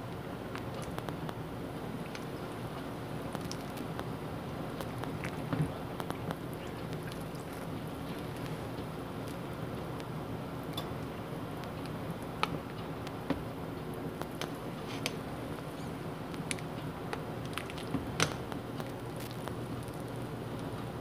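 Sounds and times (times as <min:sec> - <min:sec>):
soup boiling and bubbling: 0:00.1 - 0:21.0.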